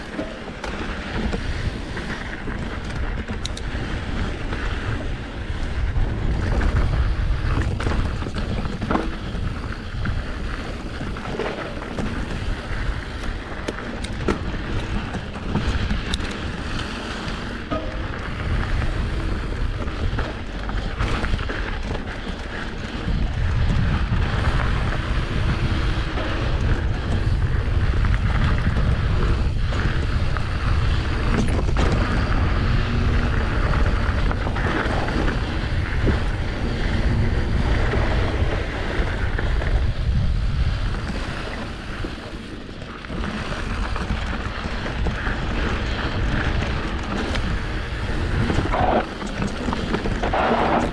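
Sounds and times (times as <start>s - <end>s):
bike clicks and rattles: 0.0s - 50.9s
tyres rolling over gravel: 0.0s - 50.9s
wind buffeting microphone: 0.0s - 50.9s.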